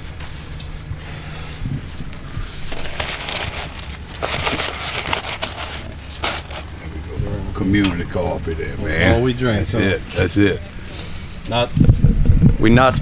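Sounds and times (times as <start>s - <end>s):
paper coffee filter rustling: 2.1s - 6.8s
aluminium foil crinkling: 2.4s - 6.8s.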